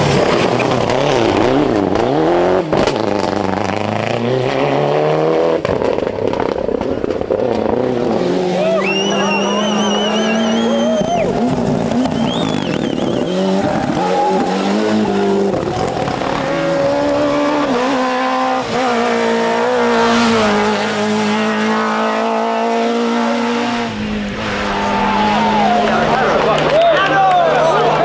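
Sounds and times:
rally car engines revving: 0:00.0 - 0:28.0
tyre squeal: 0:08.6 - 0:11.4, 0:12.0 - 0:16.1.

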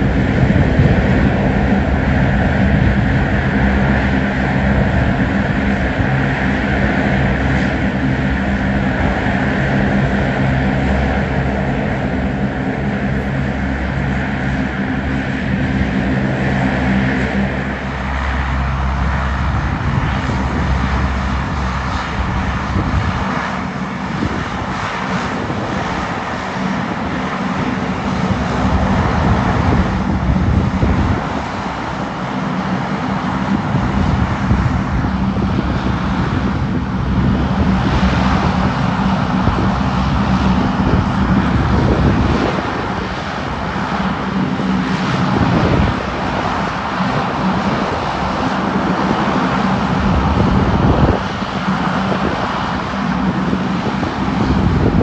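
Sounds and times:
airliner engines running: 0:00.0 - 0:55.0.

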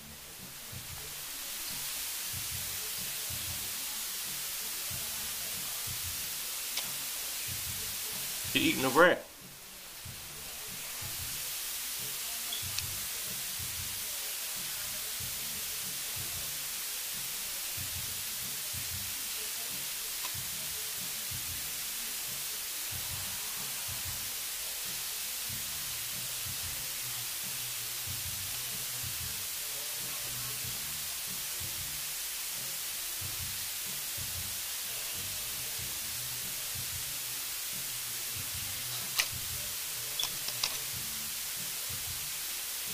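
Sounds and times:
background hiss: 0:00.0 - 0:42.9
small click: 0:40.2 - 0:40.8.

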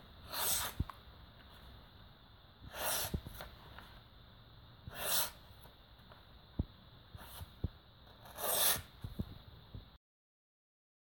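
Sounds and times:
knife slicing paper: 0:00.2 - 0:00.8, 0:08.2 - 0:08.9.

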